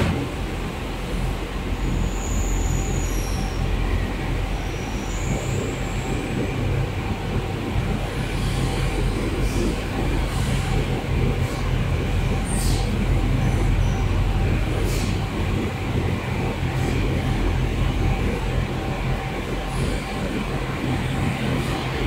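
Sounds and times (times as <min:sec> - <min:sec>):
rumbling noise: 0:00.0 - 0:01.8.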